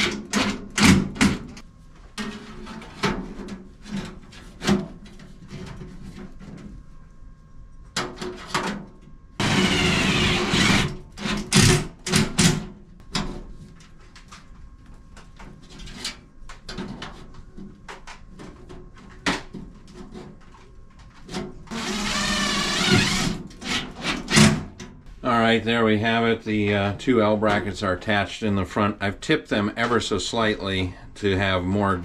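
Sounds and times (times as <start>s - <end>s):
cordless impact driver bursts: 9.4s - 11.0s, 21.7s - 23.4s.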